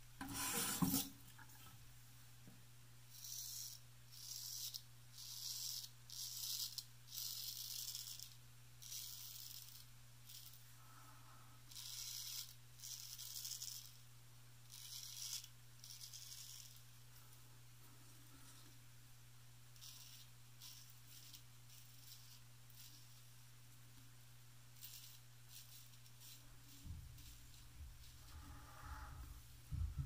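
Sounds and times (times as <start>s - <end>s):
razor scraping stubble: 11.7s - 14.0s, 14.7s - 16.8s, 19.8s - 23.3s, 24.8s - 29.2s.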